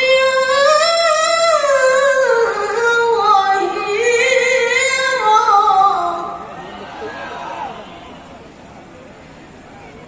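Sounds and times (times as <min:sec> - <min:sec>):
woman reciting melodically: 0:00.0 - 0:06.5.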